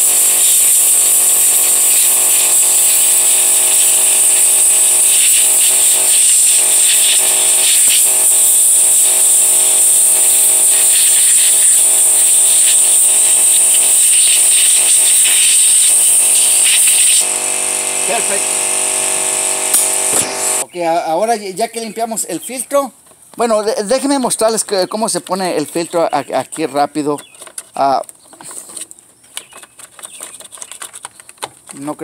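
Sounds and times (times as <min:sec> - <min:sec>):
compressed air blow gun hissing: 0:00.0 - 0:20.6
steady low hum: 0:14.0 - 0:20.6.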